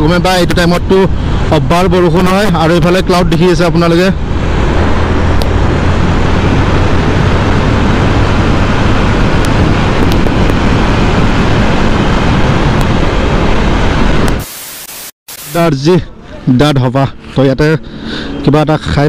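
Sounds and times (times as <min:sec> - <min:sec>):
wind rushing over microphone: 0:00.0 - 0:14.6
motorcycle engine cruising: 0:04.2 - 0:14.4.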